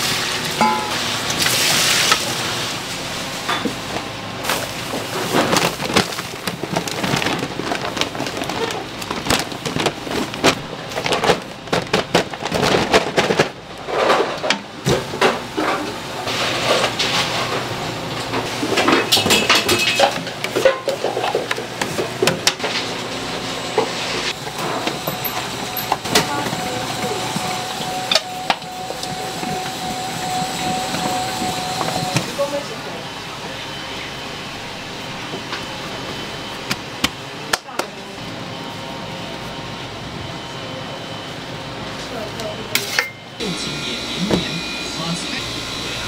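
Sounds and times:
steady noisy background: 0:00.0 - 0:46.0
tools and trays clattering: 0:18.6 - 0:22.9.

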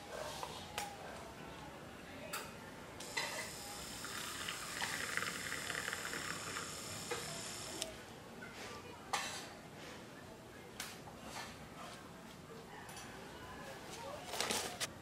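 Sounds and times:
milk frother whirring: 0:03.0 - 0:07.9.

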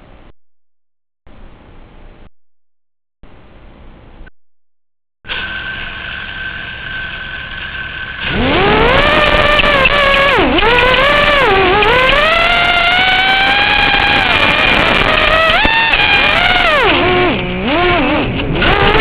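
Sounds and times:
quadcopter motors whining: 0:05.3 - 0:19.0.

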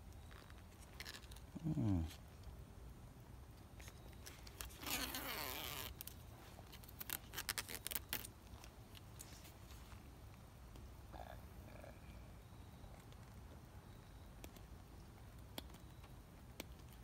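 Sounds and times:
short crackles: 0:03.8 - 0:09.6
tape liner peeling: 0:03.8 - 0:09.6.

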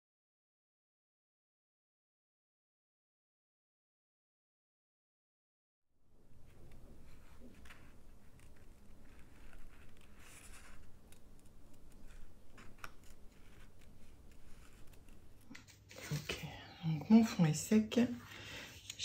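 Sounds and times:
paper rustling: 0:06.3 - 0:16.5
scissors snipping paper: 0:06.5 - 0:16.0.

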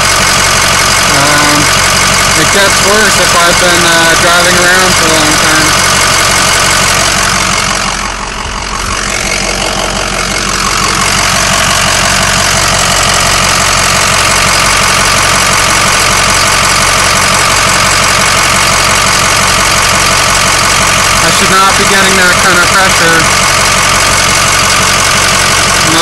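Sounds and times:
diesel engine idling: 0:00.0 - 0:26.0.

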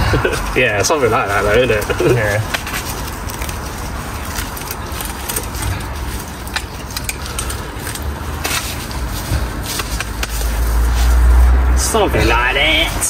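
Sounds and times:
low rumble: 0:00.0 - 0:09.8
brush crackling and rustling: 0:00.0 - 0:13.0.

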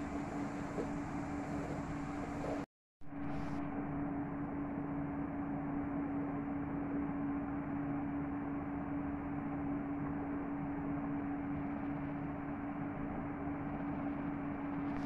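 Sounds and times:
steady hiss: 0:00.0 - 0:02.6
low-pitched hum: 0:00.0 - 0:15.0.

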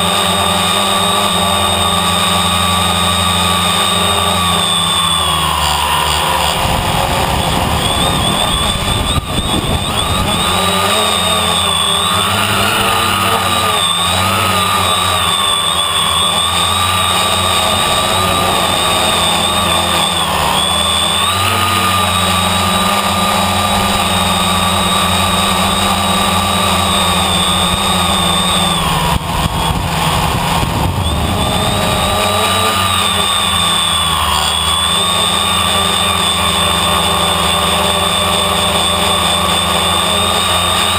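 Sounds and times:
drone motors whining: 0:00.0 - 0:40.9
wind on microphone: 0:06.4 - 0:33.8.

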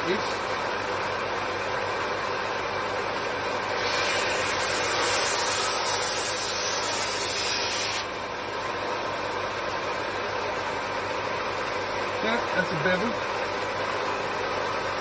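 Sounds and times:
electric planer cutting wood: 0:03.8 - 0:08.1.

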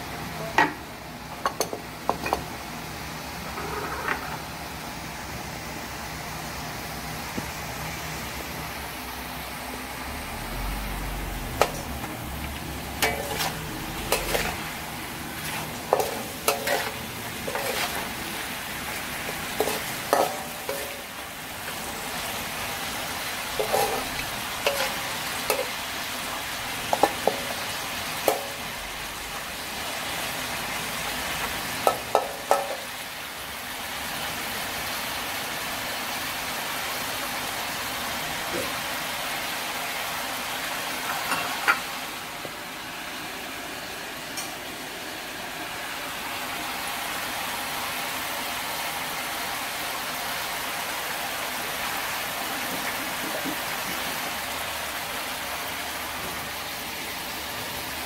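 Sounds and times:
livers sizzling in a wok: 0:00.0 - 0:58.0
spatula scraping metal pan: 0:13.0 - 0:18.2, 0:19.2 - 0:21.1, 0:23.6 - 0:25.7.

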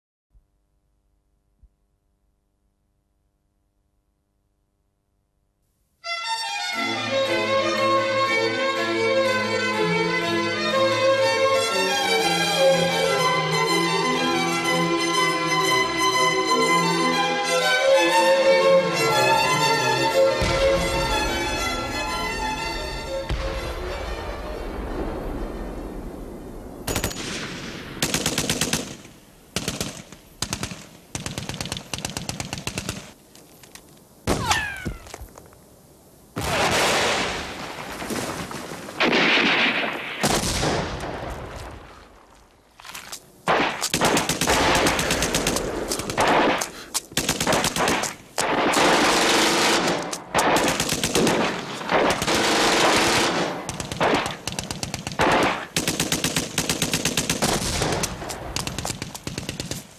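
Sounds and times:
automatic gunfire bursts: 0:28.0 - 0:33.2, 0:43.5 - 0:59.9.

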